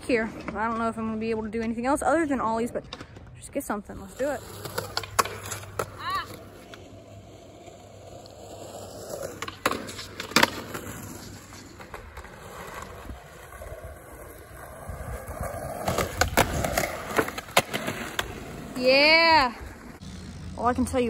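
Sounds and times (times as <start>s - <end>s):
skateboard wheels rolling on asphalt: 0.0s - 21.0s
skateboard popping and landing: 4.1s - 20.0s.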